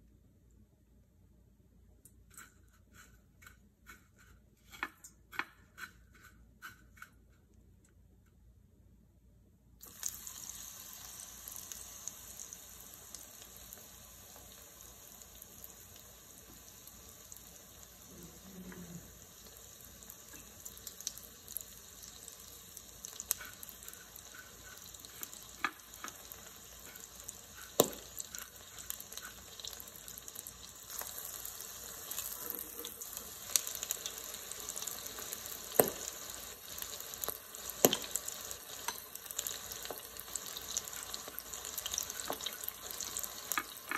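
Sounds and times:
calamari deep-frying in oil: 0:09.8 - 0:43.9
crackling pops of frying oil: 0:20.2 - 0:43.9.

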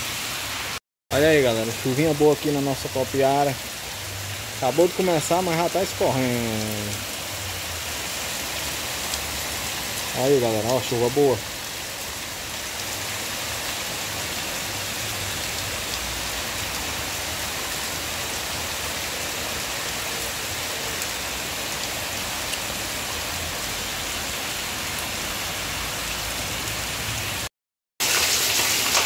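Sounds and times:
rain on cobbled street: 0:00.0 - 0:29.0
water running off: 0:04.6 - 0:07.1, 0:28.0 - 0:29.0.

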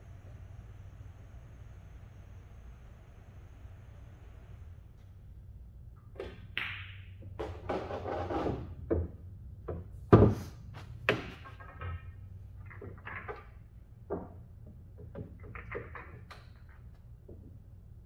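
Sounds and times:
billiard balls clacking: 0:06.0 - 0:18.0.

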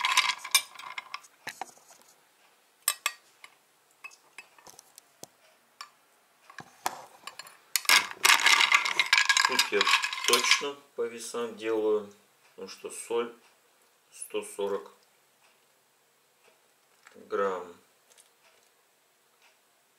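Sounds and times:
metal spoon clinking on glass jug: 0:07.3 - 0:10.7.

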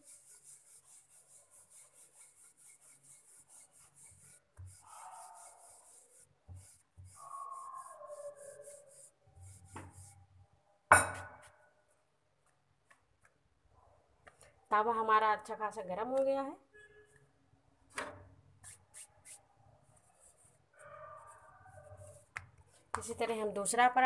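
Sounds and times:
rolling pin rubbing on dough: 0:00.0 - 0:10.3.

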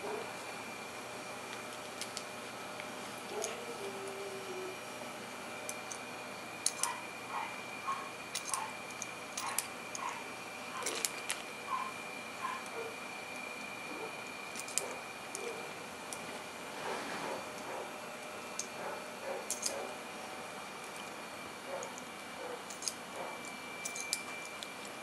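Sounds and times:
puppy squeaking: 0:11.7 - 0:12.7.

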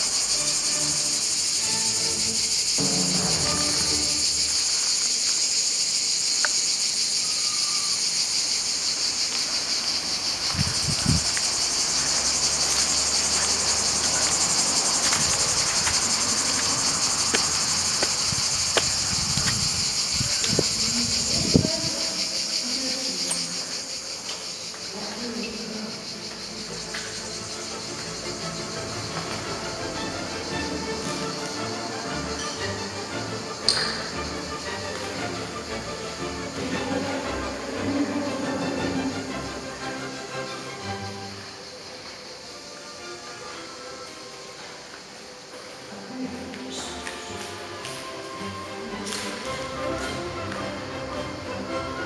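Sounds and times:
high-pitched insect chorus: 0:00.0 - 0:52.0
footsteps and handling thumps: 0:17.3 - 0:19.7.

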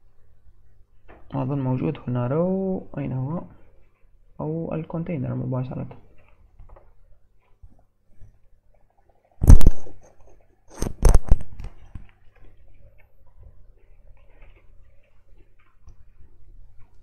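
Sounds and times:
faint steady hum: 0:00.0 - 0:17.0
short loud thump: 0:09.4 - 0:09.9
sharp clicks and knocks: 0:09.4 - 0:12.2.

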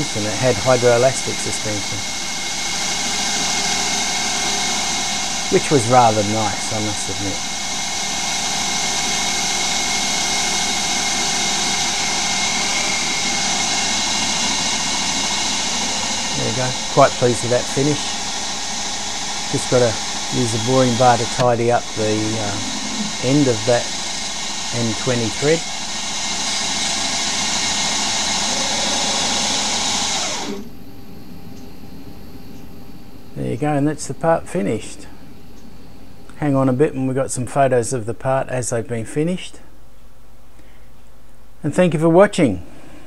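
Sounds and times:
coolant mist hissing: 0:00.0 - 0:30.6
lathe spindle whining: 0:00.0 - 0:36.8.

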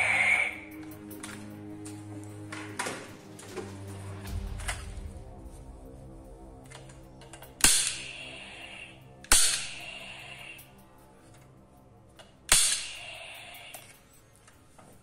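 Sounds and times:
background music: 0:00.0 - 0:15.0
toy pistol shots: 0:07.6 - 0:08.2, 0:09.3 - 0:09.8, 0:12.5 - 0:13.1.

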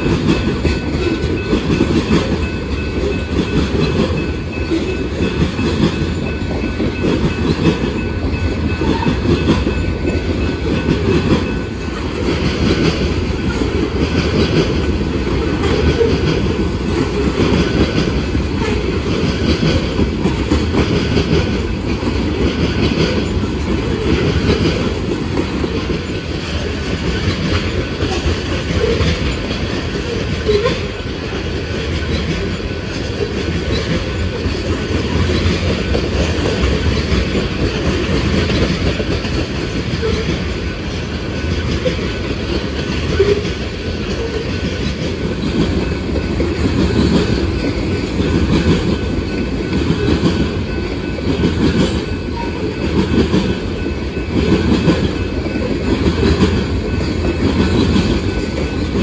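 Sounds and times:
freight train wheels rolling: 0:00.0 - 0:59.0.

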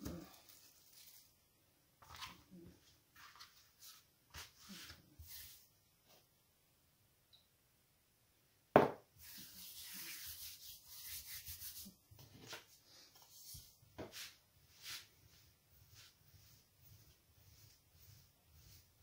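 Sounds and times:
hands rubbing pastry dough: 0:02.0 - 0:06.2, 0:09.2 - 0:19.0
rolling pin over dough: 0:13.3 - 0:19.0.

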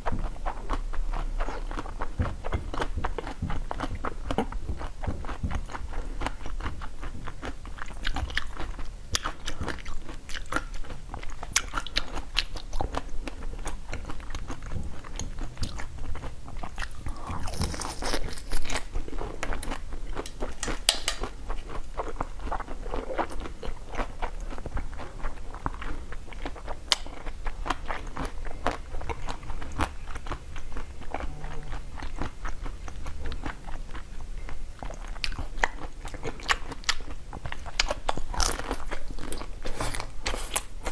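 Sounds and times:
crunching frozen treats: 0:11.6 - 0:30.4.

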